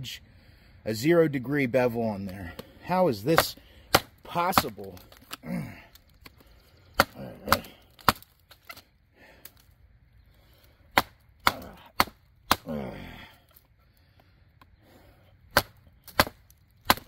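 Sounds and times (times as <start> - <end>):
person grunting with effort: 5.4 - 5.9, 7.0 - 7.9, 11.5 - 13.4
knife chopping into wood: 10.9 - 12.7, 15.5 - 17.0.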